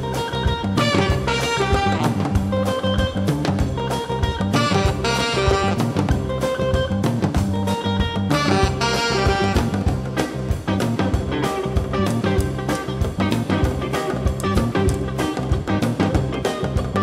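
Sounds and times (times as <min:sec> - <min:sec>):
instrumental background music: 0:00.0 - 0:17.0.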